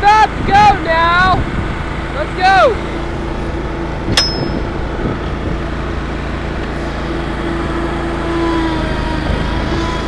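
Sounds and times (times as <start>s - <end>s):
lawnmower engine running: 0.0s - 10.0s
sharp metallic clank: 4.1s - 4.8s.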